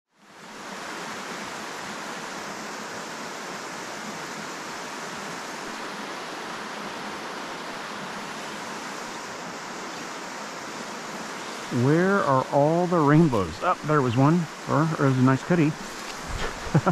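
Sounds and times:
river water rushing: 0:00.1 - 0:16.9.

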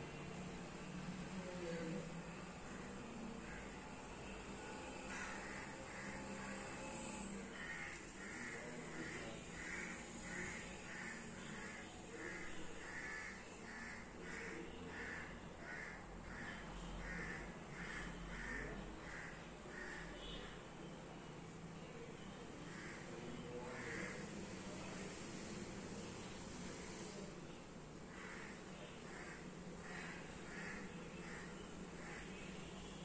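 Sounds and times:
crow cawing: 0:03.4 - 0:04.0, 0:04.6 - 0:20.4, 0:22.7 - 0:24.4, 0:28.1 - 0:32.5.

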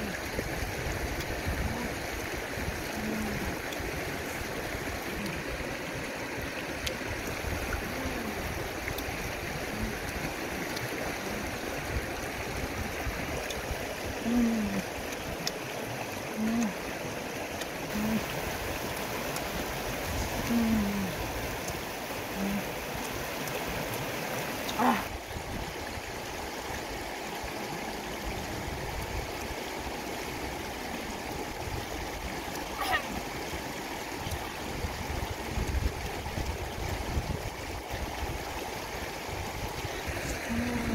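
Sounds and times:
river rushing over rocks: 0:00.0 - 0:40.9
low voice-like hums: 0:01.3 - 0:05.7, 0:07.2 - 0:13.1, 0:14.1 - 0:15.0, 0:16.3 - 0:16.9, 0:17.9 - 0:18.5, 0:20.2 - 0:21.3, 0:22.3 - 0:22.8, 0:40.0 - 0:40.9.

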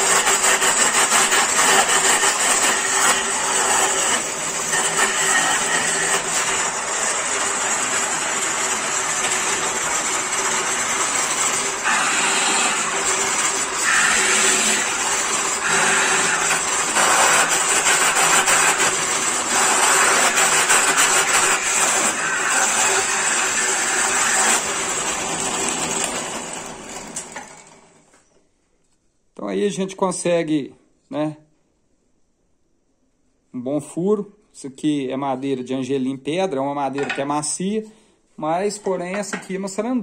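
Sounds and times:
drill bit cutting wood: 0:00.0 - 0:27.4
drill press running: 0:00.0 - 0:28.2.

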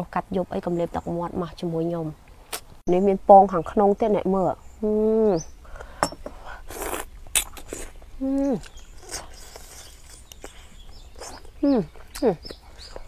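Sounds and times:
chewing squid: 0:06.6 - 0:13.0
mouth clicks: 0:06.7 - 0:13.0.

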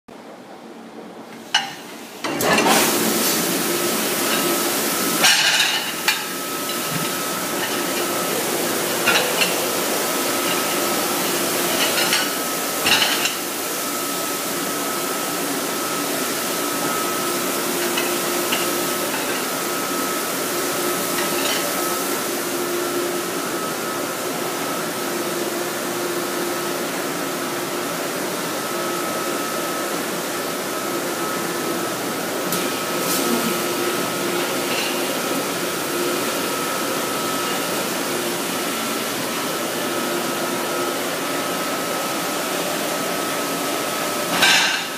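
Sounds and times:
dishwasher spray hiss and hum: 0:01.4 - 0:44.9
plates and dish racks clattering: 0:01.5 - 0:03.5, 0:04.1 - 0:13.6, 0:16.6 - 0:20.0, 0:20.8 - 0:21.9, 0:32.6 - 0:37.8, 0:44.3 - 0:44.9.

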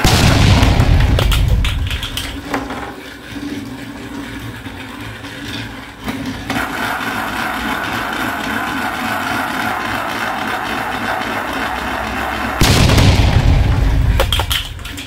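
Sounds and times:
toy train motor whirring: 0:01.8 - 0:12.6.

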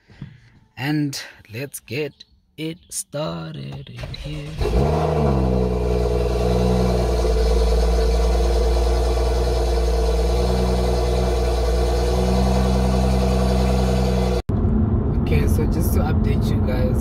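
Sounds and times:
car engine idling: 0:03.9 - 0:16.9.

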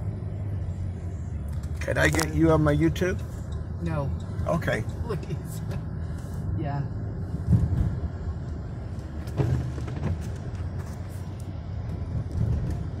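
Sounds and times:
car engine and tyre rumble: 0:00.0 - 0:13.0
car bumps: 0:09.2 - 0:10.8.

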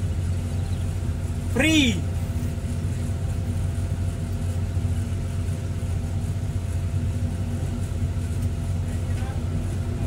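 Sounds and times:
excavator diesel engine running: 0:00.0 - 0:10.0.

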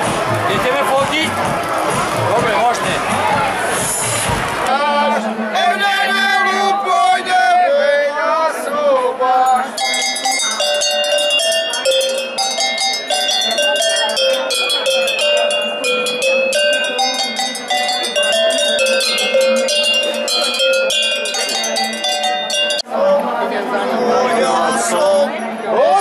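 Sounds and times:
man's voice: 0:00.3 - 0:01.5, 0:02.1 - 0:04.0, 0:04.7 - 0:09.7
tuned cowbells playing tune: 0:09.5 - 0:22.9.

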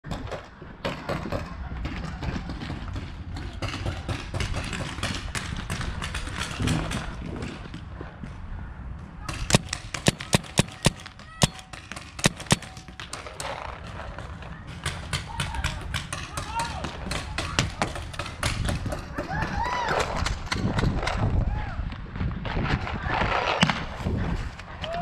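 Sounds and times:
paintball marker firing: 0:09.3 - 0:14.0.

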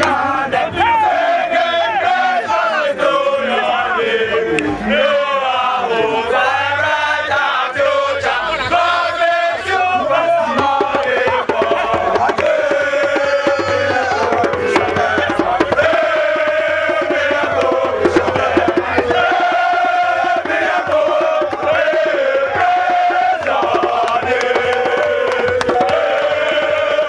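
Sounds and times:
men singing together: 0:00.0 - 0:27.0
sharp handclaps: 0:23.4 - 0:26.0.

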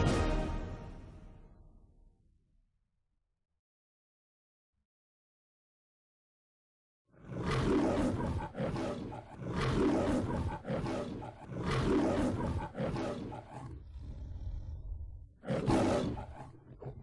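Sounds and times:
lion roaring: 0:07.2 - 0:17.0.

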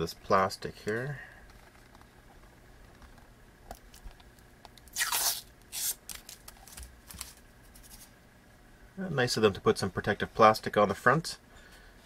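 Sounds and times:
plastic film peeling off: 0:04.9 - 0:07.4.

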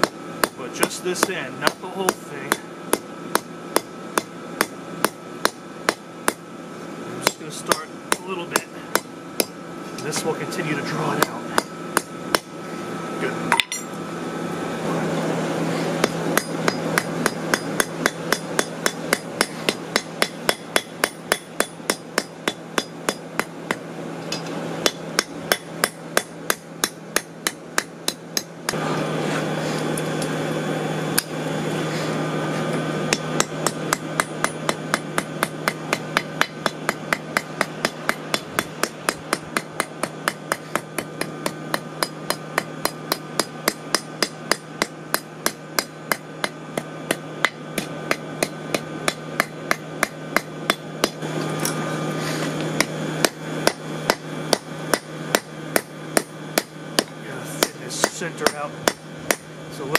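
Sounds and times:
steady low hum: 0:00.0 - 0:59.9
hammer striking spike on anvil: 0:16.0 - 0:28.8, 0:33.1 - 0:51.8, 0:52.8 - 0:59.5.

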